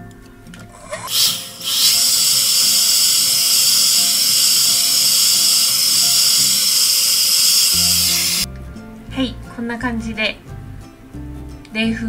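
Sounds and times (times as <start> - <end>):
hair dryer blowing: 0.8 - 8.5.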